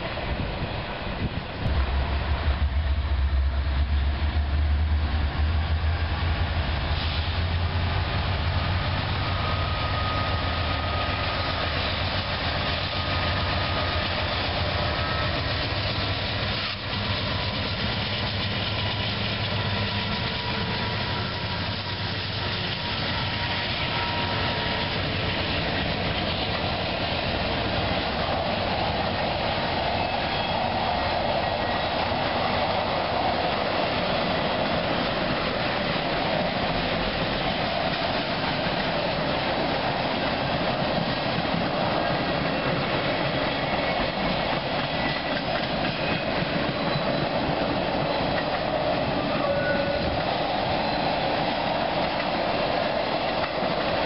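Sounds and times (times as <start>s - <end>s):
locomotive engine rumbling: 0.0s - 54.0s
train wheels on rails: 0.0s - 54.0s.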